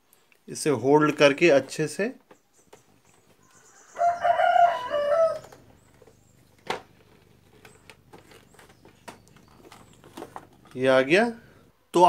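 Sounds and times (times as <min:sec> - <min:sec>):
rooster crowing: 0:03.5 - 0:05.7.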